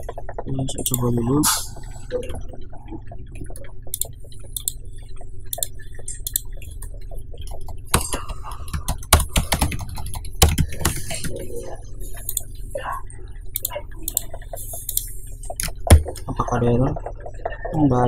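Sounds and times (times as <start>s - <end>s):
steady low hum: 0.0s - 18.0s
keystrokes on computer keyboard: 3.4s - 11.4s, 13.5s - 16.3s.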